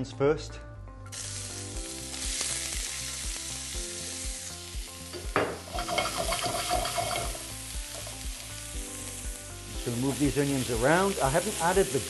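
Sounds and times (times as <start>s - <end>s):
onions sizzling in oil: 1.1s - 12.0s
stirring in a pan: 5.7s - 7.4s.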